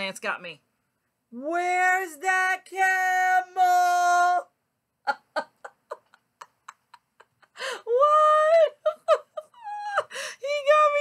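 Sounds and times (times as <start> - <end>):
woman laughing breathily: 5.1 - 10.4.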